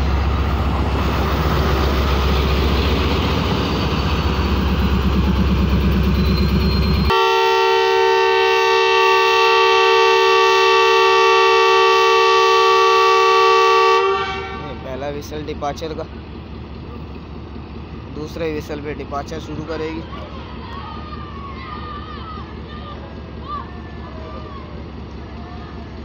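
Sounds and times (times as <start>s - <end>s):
locomotive engine running: 0.0s - 26.0s
locomotive horn blast: 7.1s - 15.0s.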